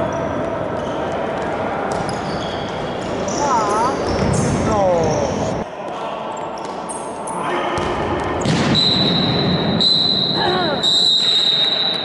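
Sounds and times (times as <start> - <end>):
ball kicked and bounced: 1.9 - 2.3, 7.8 - 8.8
shoe squeaks on court floor: 2.0 - 4.3.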